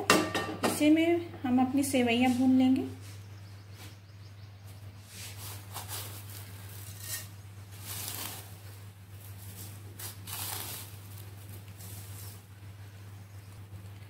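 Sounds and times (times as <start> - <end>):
dry vermicelli rustling: 5.0 - 14.0.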